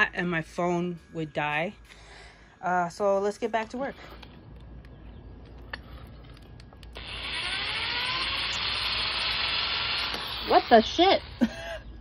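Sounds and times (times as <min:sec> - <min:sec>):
power drill running: 0:06.9 - 0:11.5.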